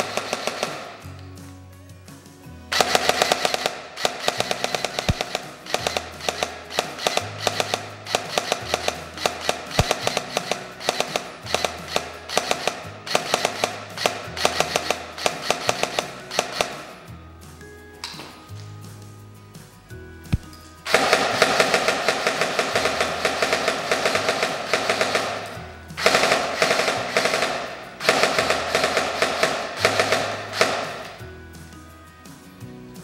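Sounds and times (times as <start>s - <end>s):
airsoft rifle firing bursts: 0.0s - 1.2s, 2.7s - 17.1s, 20.3s - 31.3s
gearbox cycling: 2.7s - 16.9s.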